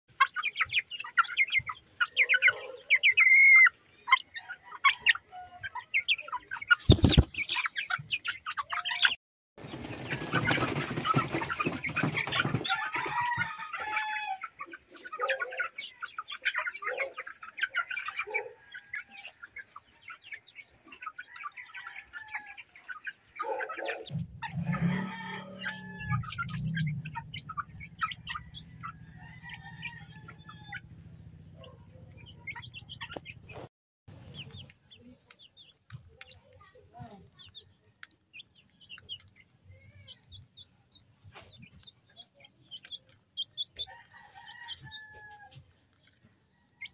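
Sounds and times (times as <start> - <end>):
chickens clucking: 0.1 - 46.9
wings flapping: 6.8 - 7.5, 9.6 - 12.6.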